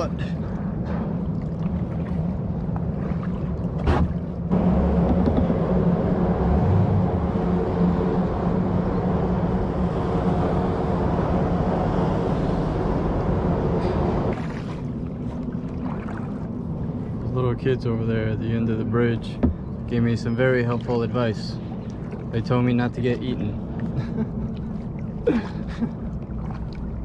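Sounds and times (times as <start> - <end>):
tyre hum on steel bridge deck: 3.8 - 15.6.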